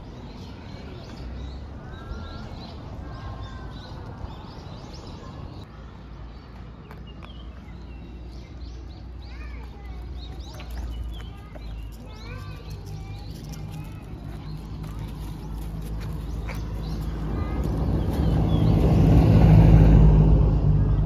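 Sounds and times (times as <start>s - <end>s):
birds chirping: 0.0s - 20.1s
car approaching: 12.3s - 21.0s.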